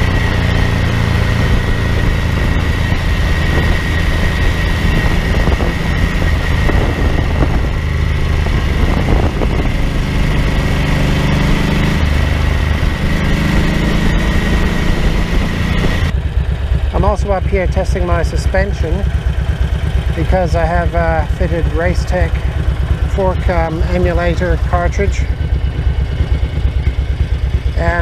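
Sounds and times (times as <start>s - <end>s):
motorcycle engine running: 0.0s - 28.0s
wind and road rush: 0.0s - 28.0s.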